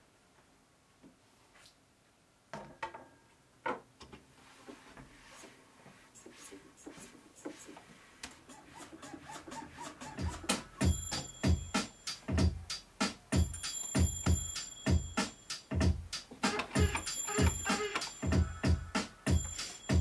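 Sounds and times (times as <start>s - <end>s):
rubbing and scraping handling: 4.4s - 11.3s, 16.2s - 20.0s
deep beat: 10.1s - 20.0s.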